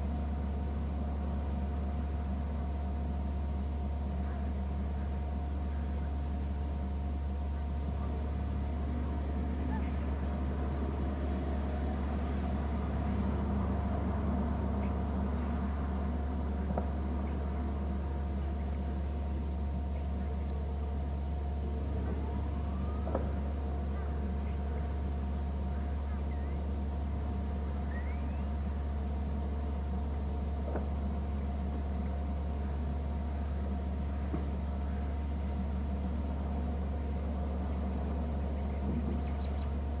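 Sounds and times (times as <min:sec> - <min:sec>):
steady low drone: 0:00.0 - 0:40.0
steady low hum: 0:00.0 - 0:40.0
faint short bird calls: 0:25.7 - 0:26.6, 0:27.8 - 0:29.3
high-pitched bird chirps: 0:27.9 - 0:28.5.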